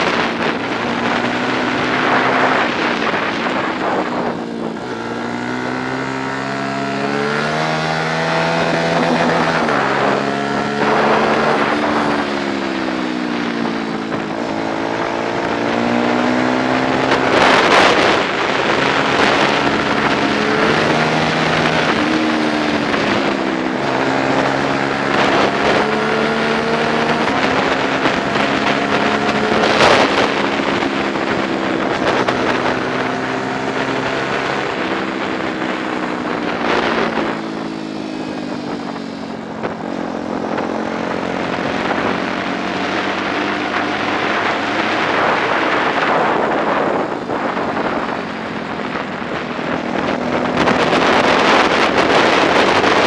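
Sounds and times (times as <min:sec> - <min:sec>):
motorcycle engine revving: 0:00.0 - 0:53.0
wind rushing: 0:00.0 - 0:53.0.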